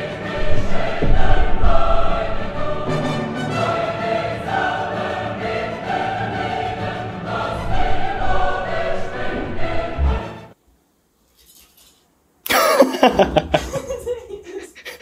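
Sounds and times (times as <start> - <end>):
dramatic choral music with orchestra: 0.0 - 10.6
low thump: 0.4 - 2.7.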